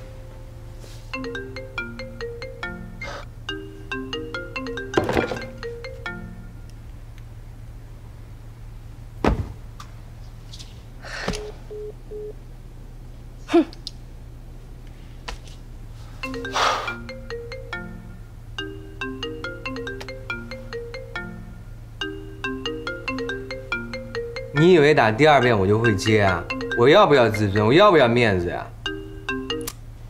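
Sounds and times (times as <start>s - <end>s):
phone ringtone melody: 0.0s - 6.6s, 16.2s - 28.1s, 28.8s - 29.8s
low steady hum: 0.0s - 30.0s
knocks and rustles: 4.9s - 5.6s, 9.2s - 11.4s.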